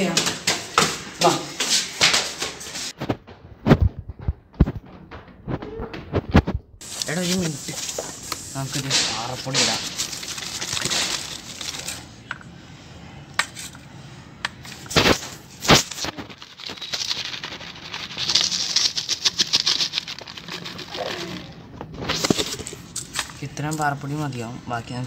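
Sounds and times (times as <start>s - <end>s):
dust pouring into steel bowl: 6.8s - 12.1s
patter of falling grains: 6.8s - 12.1s, 16.2s - 21.6s.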